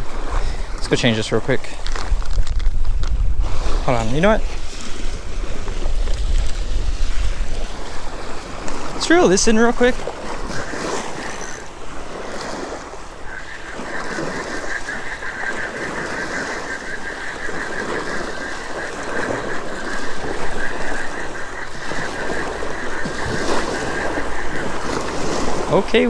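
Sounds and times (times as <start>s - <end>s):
small waves lapping: 0.0s - 26.0s
fishing reel gears whirring: 5.5s - 25.6s.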